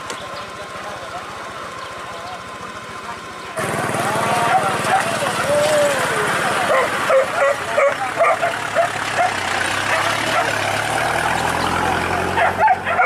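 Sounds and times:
pickup truck engine hum: 0.0s - 13.0s
dogs yipping and barking: 4.4s - 5.5s, 6.5s - 13.0s.

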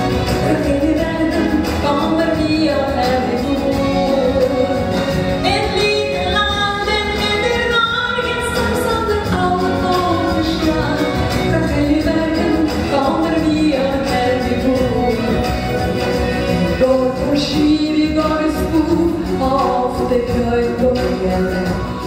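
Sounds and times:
instrumental accompaniment: 0.0s - 22.0s
woman singing into microphone: 0.0s - 22.0s.

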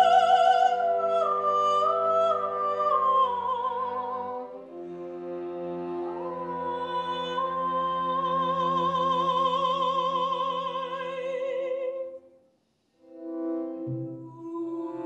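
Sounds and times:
string quartet chords: 0.0s - 11.1s, 13.0s - 15.0s
woman singing high note: 14.1s - 15.0s.

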